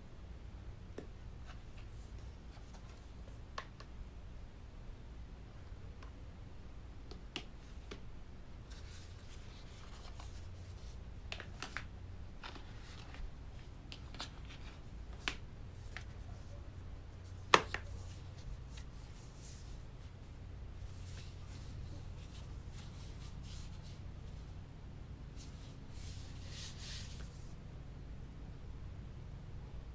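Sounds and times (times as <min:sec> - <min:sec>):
low steady hum: 0:00.0 - 0:29.9
tablet and case tapping and clicking: 0:17.5 - 0:17.9.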